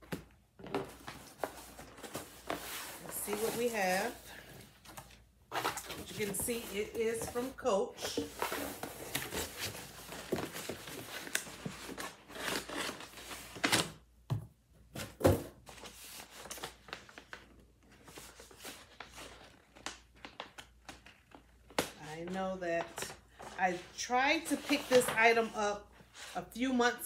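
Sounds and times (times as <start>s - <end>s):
paper packing rustling: 0.1s - 13.8s.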